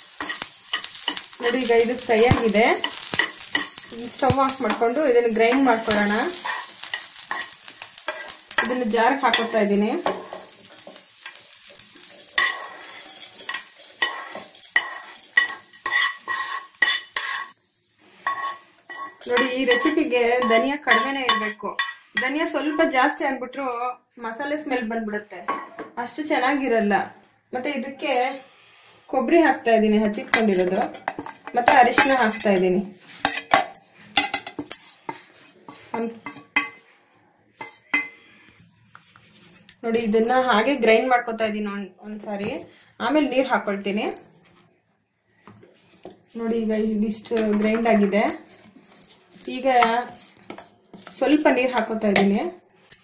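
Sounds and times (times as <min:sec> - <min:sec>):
spatula scraping a pan: 0:00.0 - 0:22.9, 0:28.0 - 0:29.1, 0:30.2 - 0:37.0, 0:37.6 - 0:39.5, 0:48.8 - 0:52.3
sharp scrapes and clinks: 0:00.2 - 0:22.3, 0:30.3 - 0:38.3, 0:38.9 - 0:40.6, 0:48.0 - 0:51.5.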